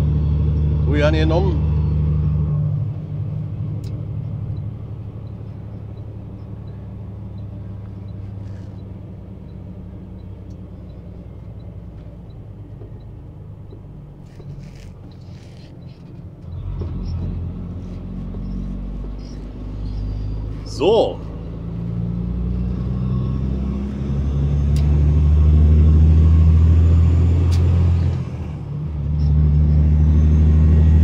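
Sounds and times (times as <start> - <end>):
truck diesel engine: 0.0 - 31.0
turn signal ticking: 3.8 - 17.4.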